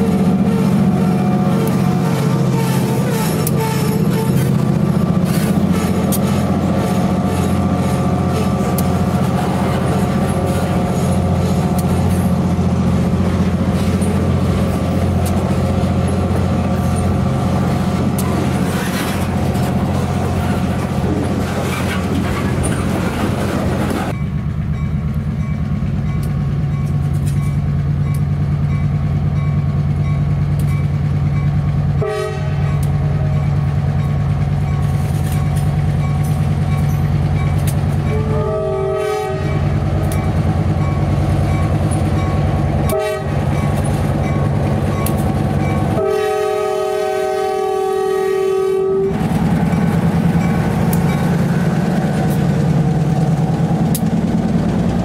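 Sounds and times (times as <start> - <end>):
diesel locomotive engine: 0.0 - 55.0
freight train cars rolling past: 0.0 - 55.0.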